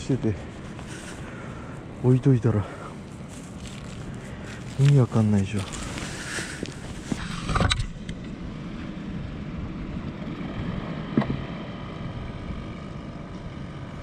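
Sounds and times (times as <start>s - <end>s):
handling rustle: 0.0s - 7.6s
low machine drone: 0.0s - 14.0s.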